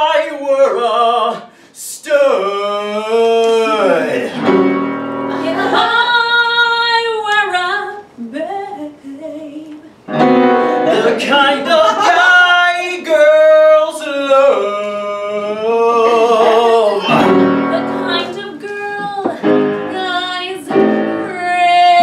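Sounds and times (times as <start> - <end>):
man's voice: 0.0 - 4.5, 10.8 - 17.6
guitar accompaniment: 4.2 - 6.4, 10.1 - 12.3, 15.8 - 22.0
woman singing with vibrato: 5.3 - 22.0.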